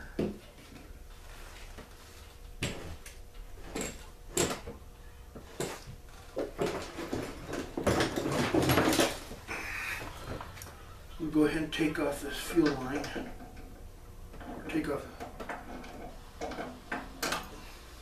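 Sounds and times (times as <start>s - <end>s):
tools rummaged on workbench: 6.4s - 9.3s.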